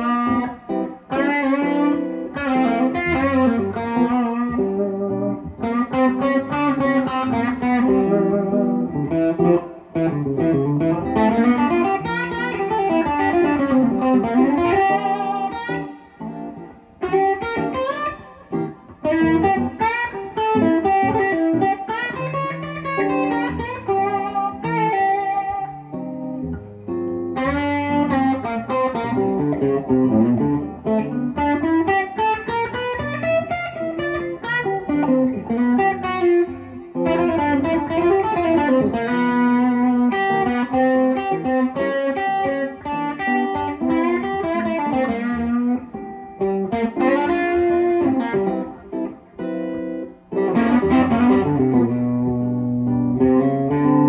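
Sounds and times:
clean electric guitar melody: 0:00.0 - 0:54.0.

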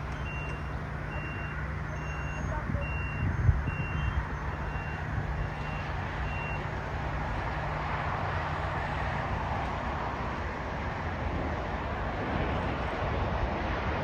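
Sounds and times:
faint high beeps: 0:00.0 - 0:06.7.

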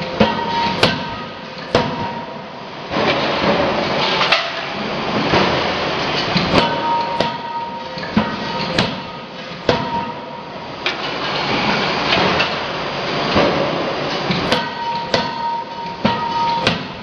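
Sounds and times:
forging hammer blows: 0:00.0 - 0:04.7
machine high hum: 0:00.0 - 0:17.0.

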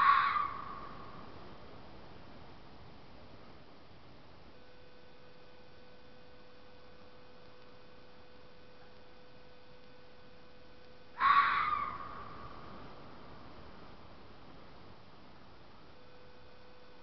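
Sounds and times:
animal screams: 0:00.0 - 0:00.8, 0:11.2 - 0:12.3
faint steady hiss: 0:00.0 - 0:17.0
thin steady hum tone: 0:00.0 - 0:17.0.

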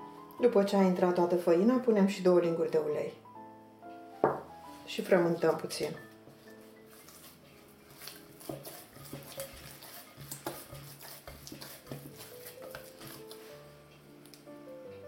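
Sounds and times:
dough squelching: 0:04.9 - 0:14.5.

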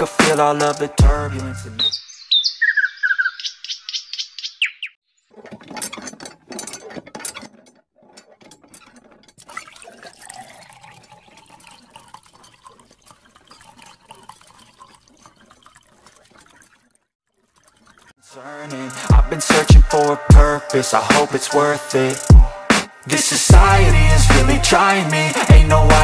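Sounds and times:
hose water splashing on plastic: 0:08.4 - 0:18.2.

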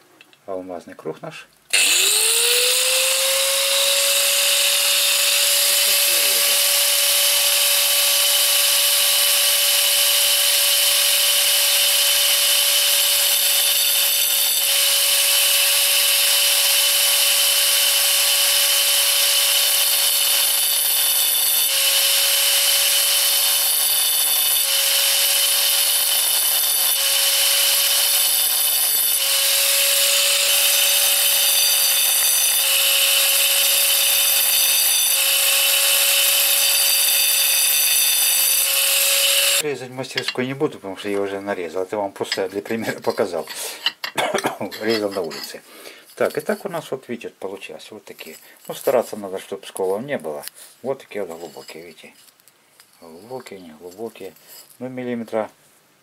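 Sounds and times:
angle grinder cutting tile: 0:01.7 - 0:40.4, 0:44.8 - 0:45.6.

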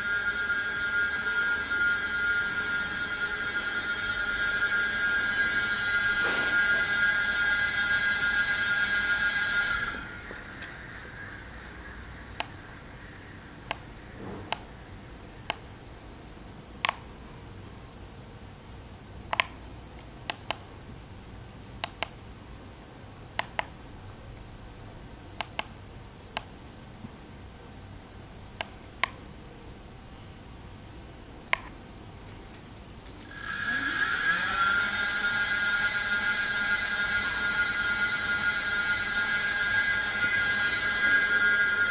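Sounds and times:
faint room hum: 0:00.0 - 0:41.9.

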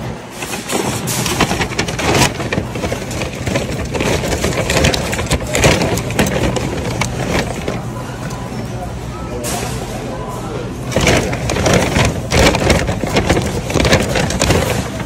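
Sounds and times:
items knocking and rustling: 0:00.0 - 0:08.4, 0:10.8 - 0:15.0.

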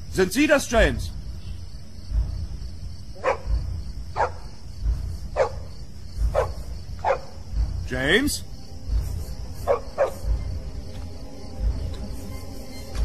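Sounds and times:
deep thud: 0:02.0 - 0:08.0
dog barking: 0:03.2 - 0:03.6, 0:04.2 - 0:04.5, 0:05.4 - 0:05.7, 0:06.3 - 0:07.4, 0:09.7 - 0:10.3.

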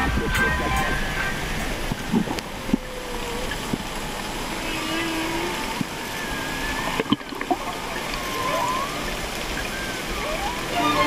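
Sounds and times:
ocean noise hiss: 0:00.0 - 0:11.0
whale song calls: 0:04.6 - 0:11.0.

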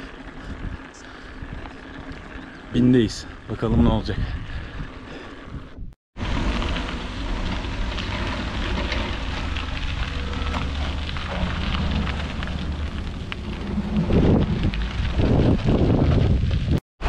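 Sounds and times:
bike tyres crunching on gravel: 0:00.0 - 0:05.5, 0:06.2 - 0:16.8
wind on microphone: 0:03.6 - 0:16.8.

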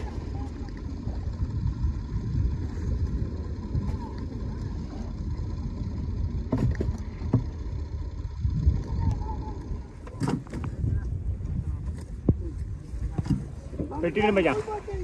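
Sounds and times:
wind rumble on microphone: 0:00.0 - 0:15.0
beach surf: 0:08.9 - 0:15.0.

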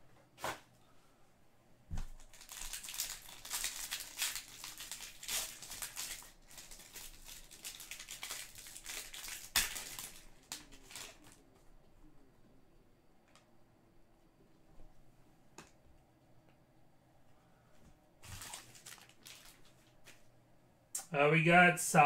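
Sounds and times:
foil wrapper crinkling and tearing: 0:02.2 - 0:11.4, 0:18.2 - 0:19.9.

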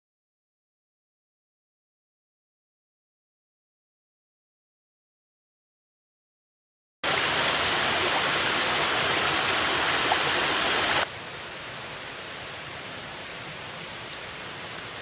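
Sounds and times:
water splashing into rock pool: 0:07.0 - 0:11.0
dull background hiss: 0:07.1 - 0:15.0.

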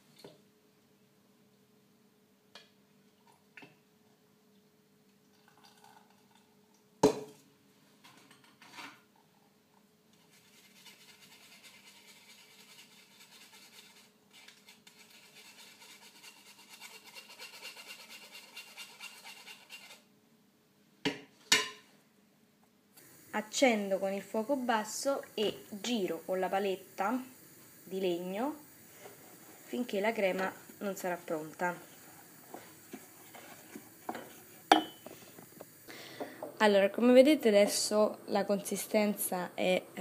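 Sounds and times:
metal spoon scraping a wire sieve: 0:10.2 - 0:20.1.

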